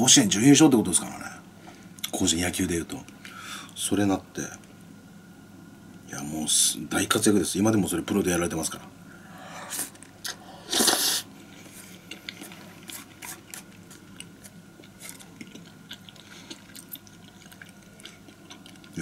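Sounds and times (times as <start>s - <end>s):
person slurping noodles: 9.6s - 11.3s
wet chewing with mouth clicks: 9.8s - 19.0s.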